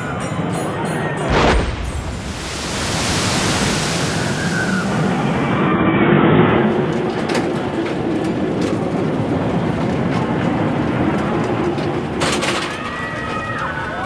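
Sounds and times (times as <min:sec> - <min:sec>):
roller coaster cars rattling: 0:04.3 - 0:14.0.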